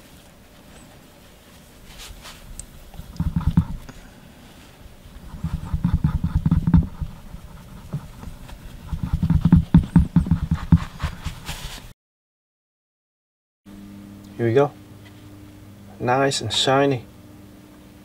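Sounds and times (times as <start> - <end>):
paper towel rubbing a disc: 1.5 - 11.9.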